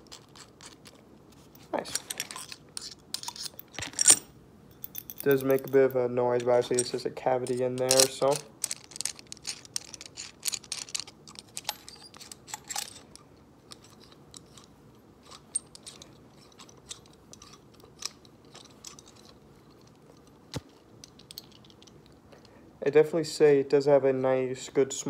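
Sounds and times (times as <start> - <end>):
metal tool pieces clicking: 1.9 - 4.2, 4.8 - 22.2.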